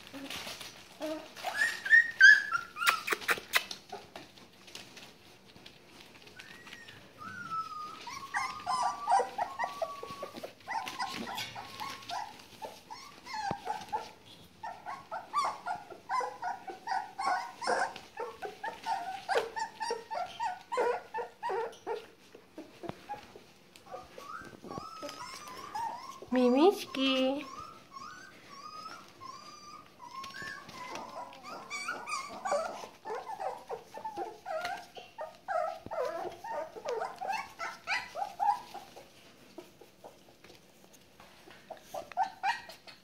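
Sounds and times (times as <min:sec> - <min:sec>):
puppies whining and yipping: 0:00.0 - 0:43.0.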